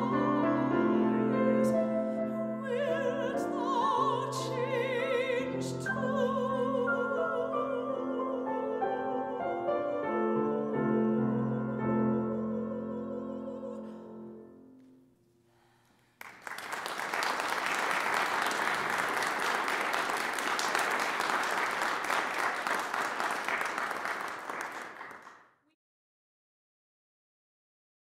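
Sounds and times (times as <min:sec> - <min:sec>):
soprano singing: 0:00.0 - 0:14.8
audience applause: 0:16.2 - 0:25.4.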